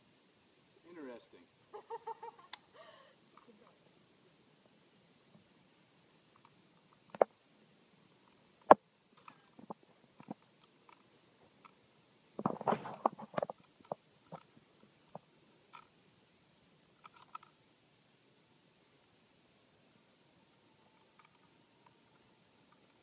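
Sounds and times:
small clicks: 8.1s - 11.8s, 17.0s - 17.6s, 20.9s - 23.0s.

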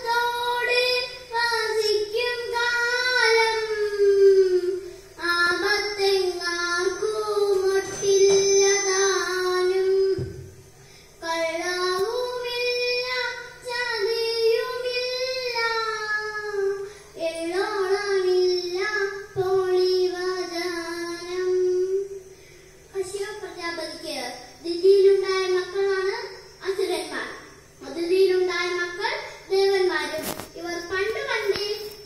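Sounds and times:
girl singing into microphone: 0.0s - 22.3s.

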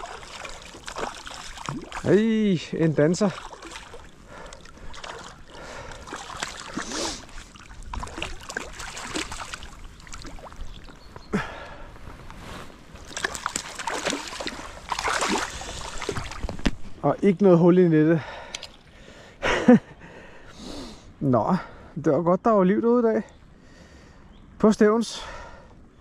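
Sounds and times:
fish splashing in shallow water: 0.0s - 11.0s, 12.9s - 16.7s.

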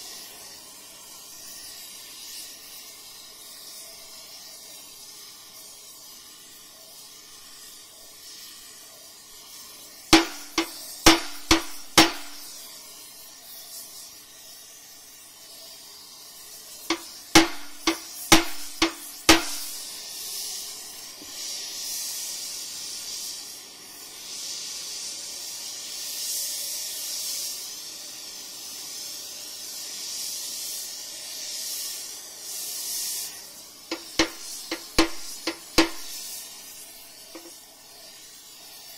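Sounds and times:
gas torch hissing: 0.0s - 38.9s
hammer blows on steel: 10.2s - 12.6s, 16.9s - 19.8s, 33.9s - 36.2s.

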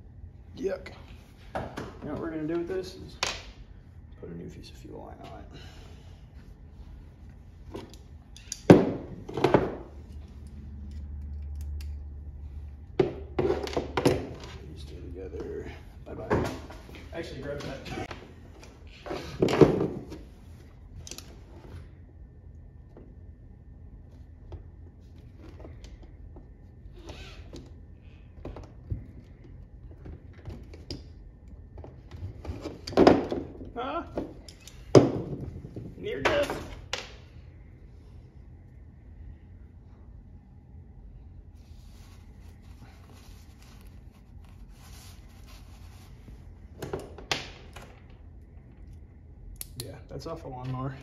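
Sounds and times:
low background hum: 0.0s - 51.0s.

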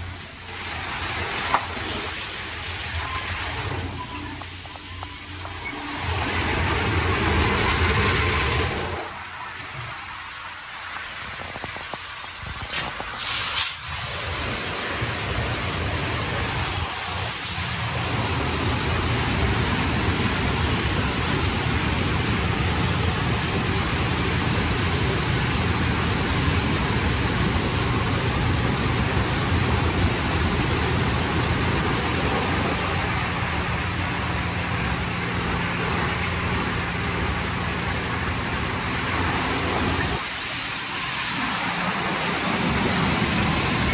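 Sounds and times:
spraying water: 0.0s - 43.9s
short sharp hiss: 12.6s - 14.0s.

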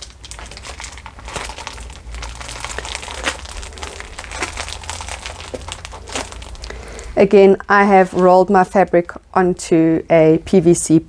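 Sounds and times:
plastic sheet crinkling: 0.0s - 8.8s.

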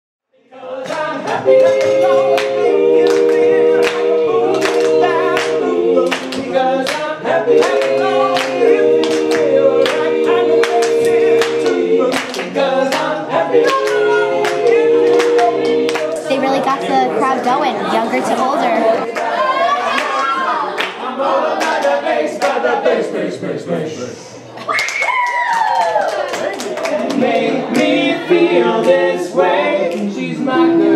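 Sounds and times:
male group singing in harmony: 0.4s - 19.9s, 20.9s - 24.3s, 26.8s - 30.9s
hand claps: 0.8s - 16.3s.

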